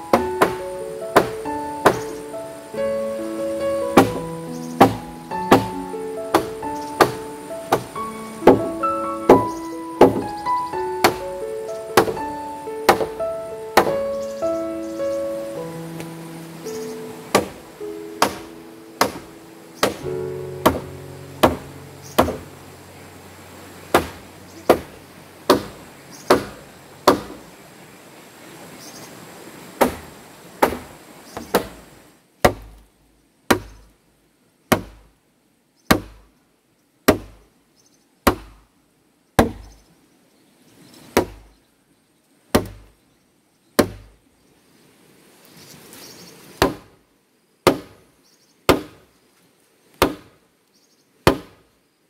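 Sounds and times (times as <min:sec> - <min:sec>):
soft music: 0:00.0 - 0:27.5
tool striking wood: 0:00.1 - 0:00.6, 0:01.2 - 0:02.1, 0:04.0 - 0:04.2, 0:04.8 - 0:05.7, 0:06.3 - 0:08.7, 0:09.3 - 0:10.3, 0:12.0 - 0:12.2, 0:12.9 - 0:13.2, 0:13.8 - 0:14.0, 0:17.3 - 0:17.6, 0:18.2 - 0:20.0, 0:20.6 - 0:22.5, 0:23.9 - 0:24.9, 0:25.5 - 0:27.4, 0:32.4 - 0:32.8, 0:33.5 - 0:33.8, 0:34.7 - 0:35.0, 0:35.9 - 0:36.2, 0:37.1 - 0:37.4, 0:38.3 - 0:38.6, 0:39.4 - 0:39.8, 0:42.6 - 0:42.9, 0:43.8 - 0:44.1, 0:46.6 - 0:46.9, 0:47.7 - 0:48.0, 0:48.7 - 0:49.0, 0:50.0 - 0:50.3, 0:51.3 - 0:51.6.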